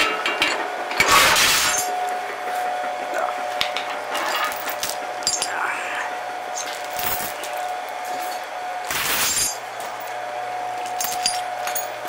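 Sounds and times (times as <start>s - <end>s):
steady high-pitched hum: 0.0s - 12.0s
chain links clinking and rattling: 4.1s - 5.6s, 6.6s - 10.0s, 10.8s - 12.0s.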